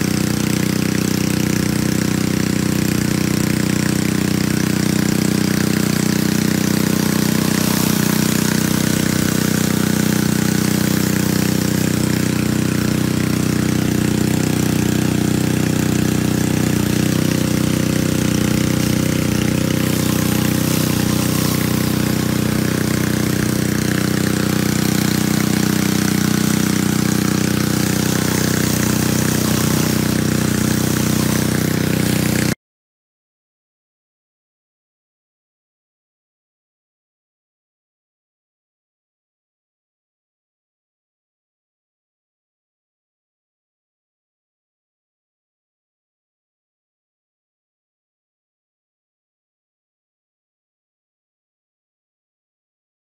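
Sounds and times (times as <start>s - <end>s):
pressure washer engine running: 0.0s - 32.6s
water spraying hiss: 3.2s - 32.6s.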